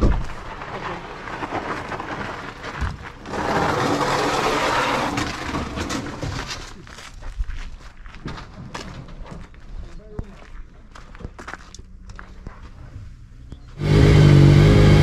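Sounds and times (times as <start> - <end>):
footsteps scuffing on dirt: 6.8 - 13.7.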